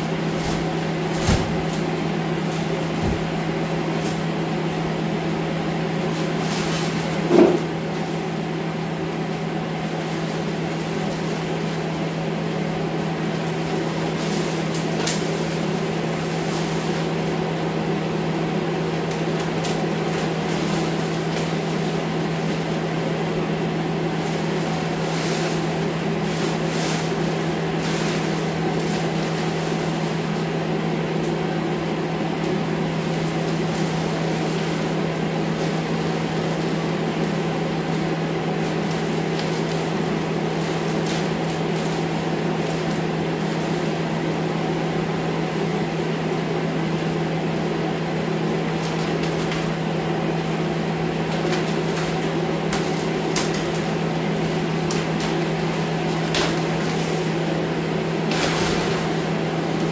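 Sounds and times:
electric fan humming: 0.0 - 59.9
plastic sheeting crinkling: 5.8 - 8.4, 9.8 - 18.0, 18.8 - 31.6, 32.5 - 46.0, 48.5 - 59.9.

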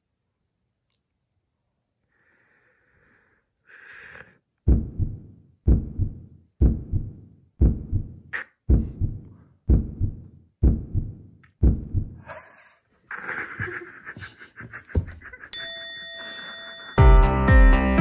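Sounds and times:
heartbeat thumps: 4.7 - 12.2
ringing chime: 15.5 - 17.6.

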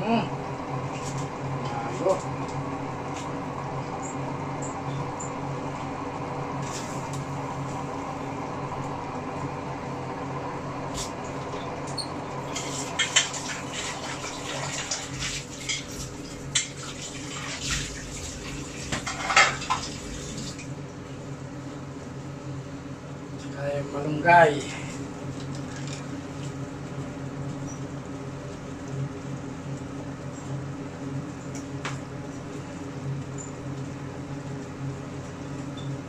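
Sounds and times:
steady hum: 0.0 - 36.0
dishes and utensils clinking: 18.9 - 19.8.

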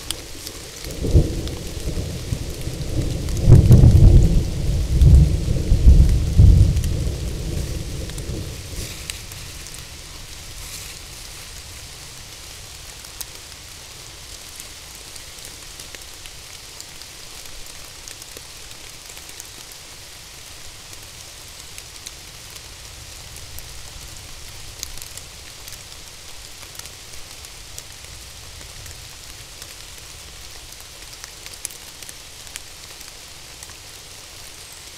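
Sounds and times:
rain on forest canopy: 0.0 - 34.9
thunder rumbling: 0.2 - 10.5.

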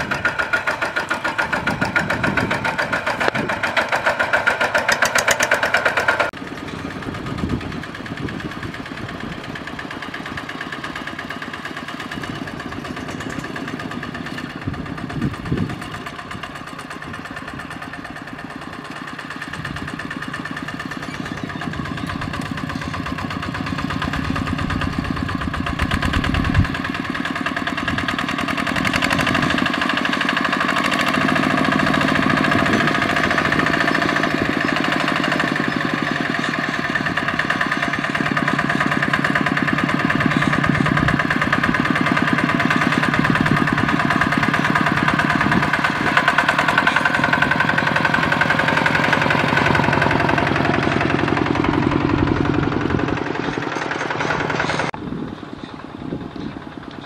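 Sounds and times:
diesel tractor engine chugging: 0.0 - 57.0.

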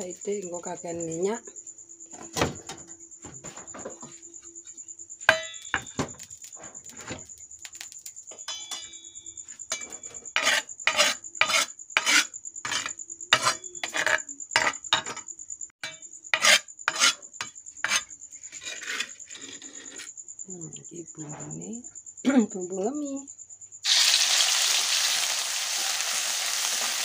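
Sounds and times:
spatula scraping a wok: 9.6 - 15.2, 15.8 - 20.1.

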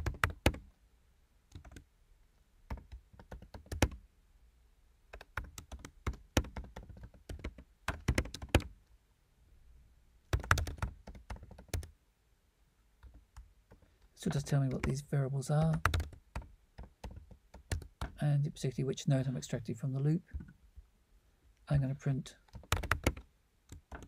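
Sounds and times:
typing on computer keyboard: 0.0 - 0.7, 1.5 - 1.8, 2.7 - 4.0, 5.1 - 8.7, 10.3 - 11.9, 13.0 - 15.0, 15.6 - 18.2, 22.4 - 24.0.

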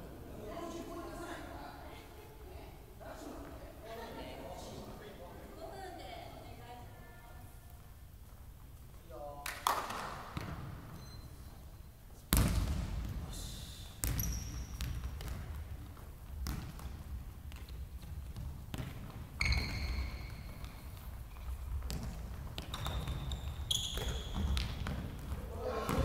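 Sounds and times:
ball kicks echoing in hall: 9.6 - 11.2, 12.2 - 26.0
sneakers squeaking on wooden court: 14.0 - 15.6, 17.5 - 26.0.

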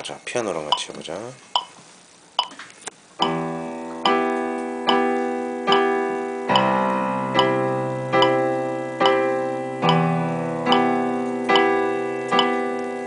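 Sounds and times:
digital piano chords: 3.2 - 13.0.

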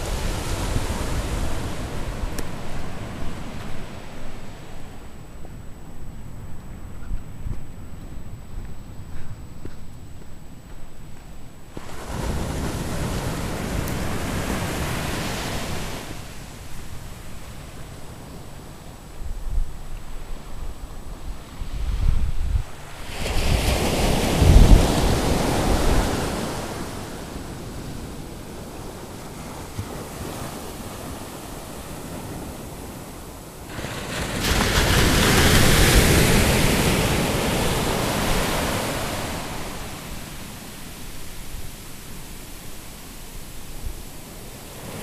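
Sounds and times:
ocean waves breaking on beach: 0.0 - 5.3, 11.7 - 19.1, 22.6 - 45.0.

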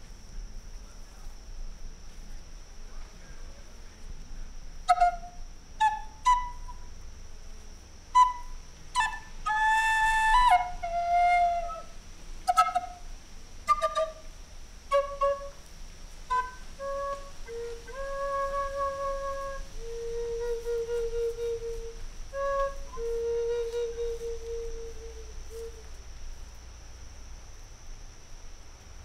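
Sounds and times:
flute playing slow melody: 4.9 - 6.9, 8.1 - 14.3, 14.9 - 15.6, 16.3 - 26.0.

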